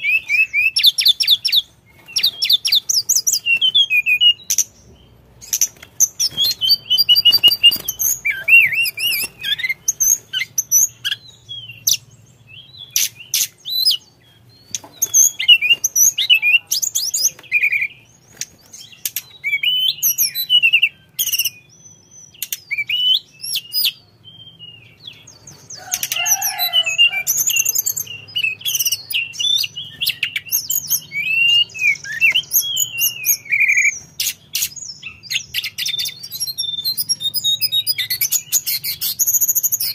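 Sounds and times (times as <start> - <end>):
bird singing chattering song: 0.0 - 39.9.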